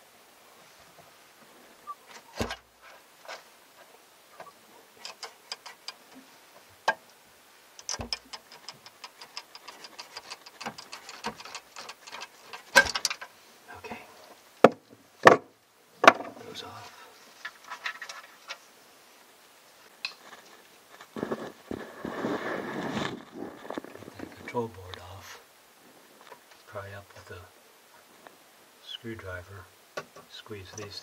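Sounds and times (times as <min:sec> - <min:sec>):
small clicks of wire connectors: 0:07.8 - 0:13.3.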